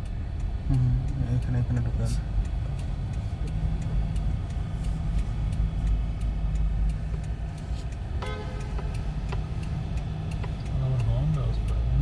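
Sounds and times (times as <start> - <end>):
car engine idling: 0.0 - 12.0
car indicator relay ticking: 0.0 - 12.0.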